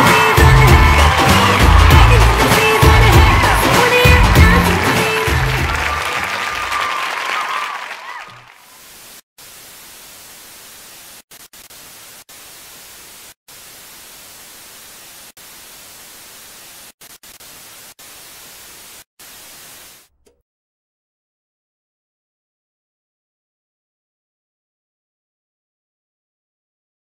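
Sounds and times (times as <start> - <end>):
dance music: 0.0 - 7.6
static hiss: 8.7 - 20.1.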